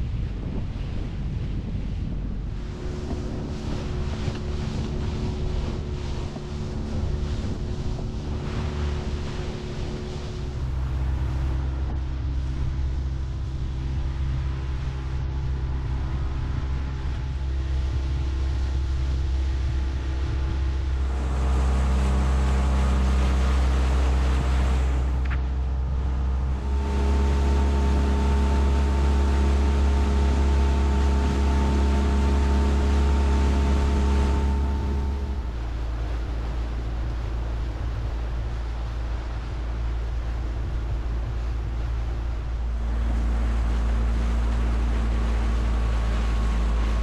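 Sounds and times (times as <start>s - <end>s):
outboard motor running: 0.0s - 47.0s
water rushing past hull: 0.0s - 47.0s.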